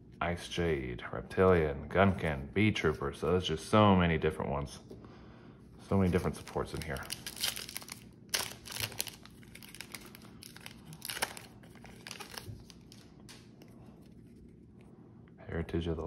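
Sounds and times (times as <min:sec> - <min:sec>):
foil wrapper tearing and crinkling: 0:06.1 - 0:13.5.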